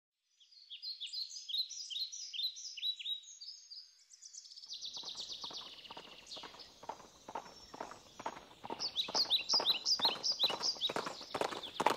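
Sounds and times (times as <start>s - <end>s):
songbirds singing: 0.3s - 11.9s.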